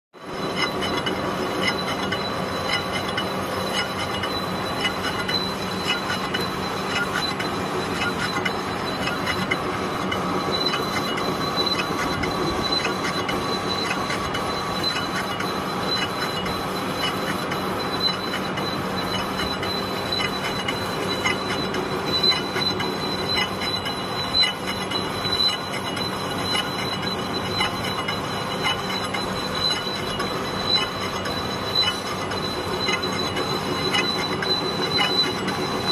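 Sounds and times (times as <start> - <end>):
metal lathe drone: 0.2 - 35.9.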